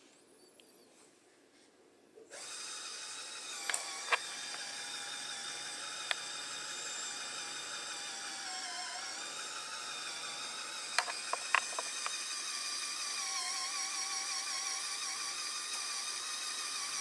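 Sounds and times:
electric motor gear whine: 2.3 - 17.0
sharp clicks: 10.9 - 12.2.

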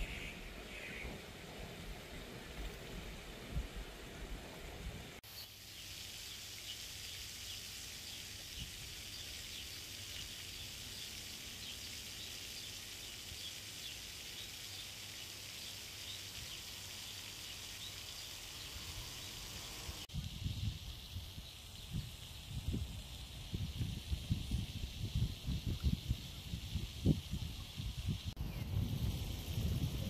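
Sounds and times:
high-pitched insect chorus: 28.4 - 30.0.

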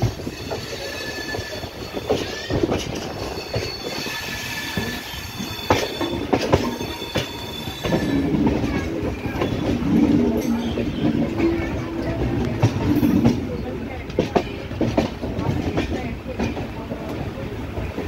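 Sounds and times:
high wheel squeals: 0.0 - 12.1
clacks over rail joints: 0.0 - 18.0
train wheels on track: 0.0 - 18.0.

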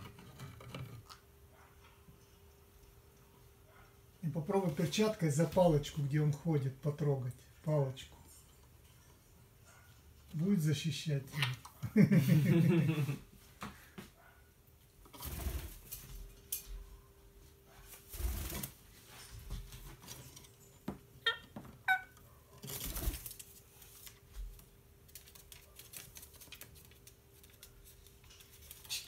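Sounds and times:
wing flapping: 15.1 - 16.1, 18.0 - 18.8, 22.6 - 23.6.

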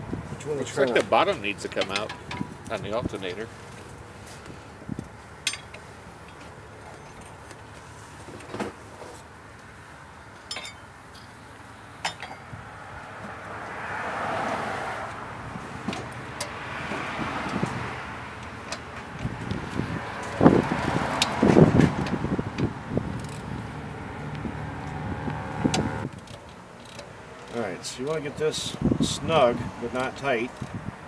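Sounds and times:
wrench clinking against metal: 5.4 - 7.4, 10.4 - 11.4
broad rushing noise: 19.1 - 26.1.

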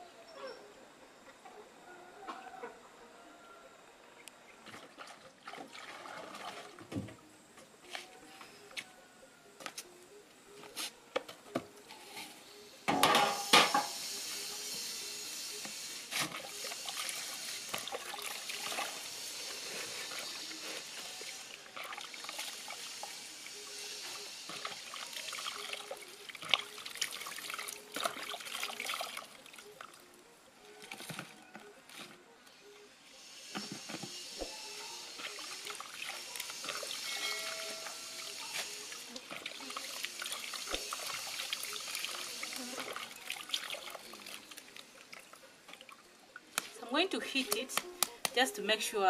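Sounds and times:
water splashing in plastic basin: 4.6 - 6.9.

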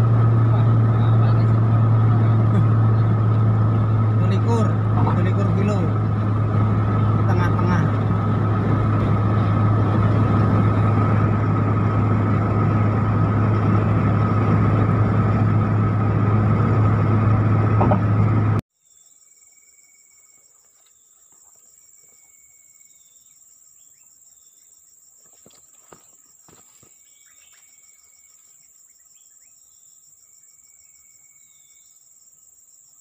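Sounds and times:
insects chirring: 0.0 - 17.7, 18.8 - 33.0
car road and engine noise: 0.0 - 18.6.

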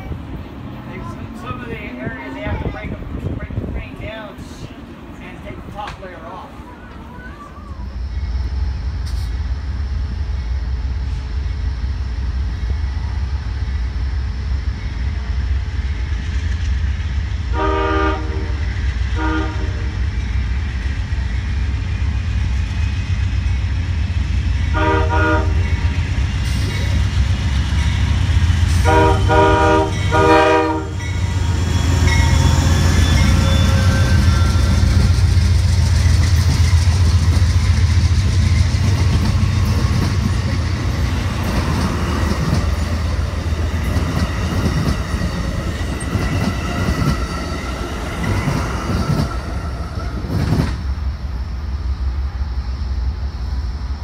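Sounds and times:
train rumble: 0.0 - 54.0
locomotive air horn blasts: 17.5 - 20.0, 24.7 - 25.8, 28.8 - 31.1.

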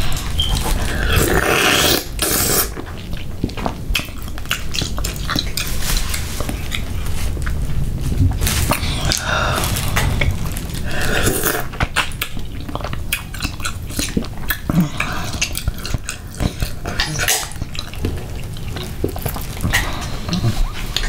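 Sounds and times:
mouth clicks and smacks: 0.0 - 7.6, 11.0 - 21.0
wet eating sounds: 0.0 - 21.0.

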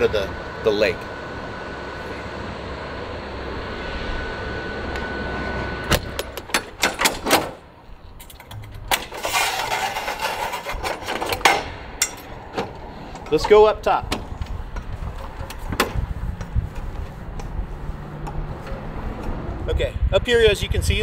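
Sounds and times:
background hum: 0.0 - 21.0
sharp metallic clicks and clanks: 5.9 - 7.6, 8.2 - 17.5
metal ladder clattering: 8.2 - 16.0.

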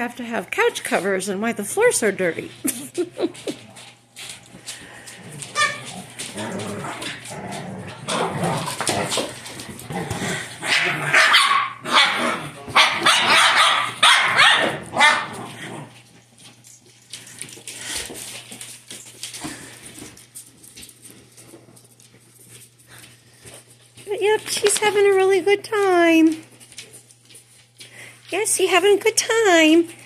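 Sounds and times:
dogs scuffling: 0.0 - 11.4, 12.0 - 29.0
dogs barking and growling: 2.7 - 18.6.

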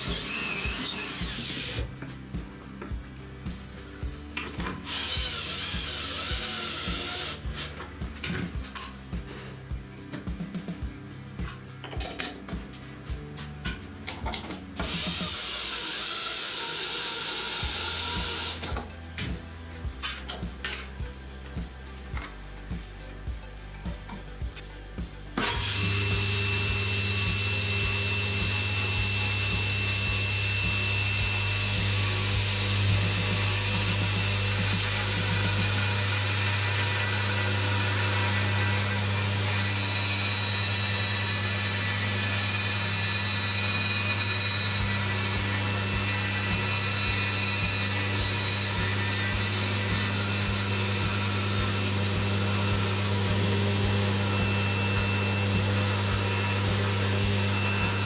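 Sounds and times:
cordless drill turning: 0.0 - 1.9, 4.8 - 7.5, 14.8 - 18.7, 25.4 - 58.0
table saw cutting wood: 0.0 - 2.0, 4.6 - 7.9, 14.8 - 18.9, 25.4 - 58.0.

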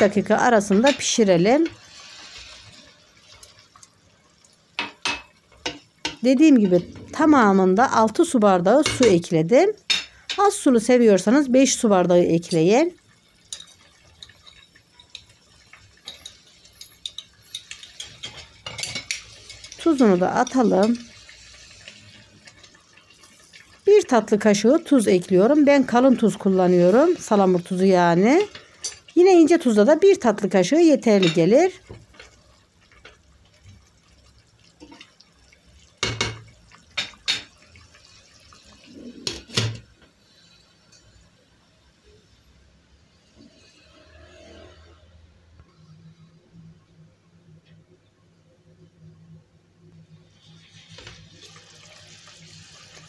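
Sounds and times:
stew bubbling with small pops: 31.2 - 40.2.

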